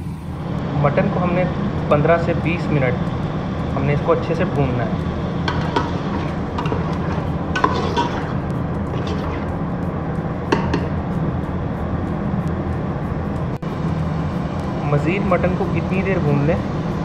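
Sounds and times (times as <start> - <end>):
steady low hum: 0.0 - 17.0
meat sizzling in oil: 4.5 - 9.6
metal spatula scraping pot: 5.3 - 9.6.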